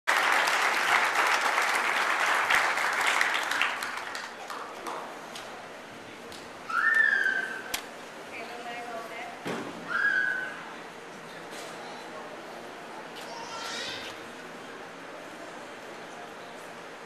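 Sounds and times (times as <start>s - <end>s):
audience applauding: 0.1s - 5.1s.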